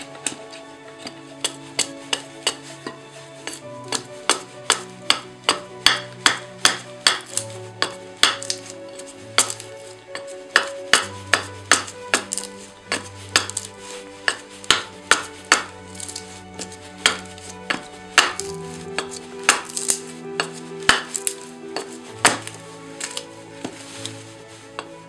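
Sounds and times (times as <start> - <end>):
background music: 0.0 - 25.0
hatchet chopping wood: 18.2 - 18.4, 19.5 - 20.0.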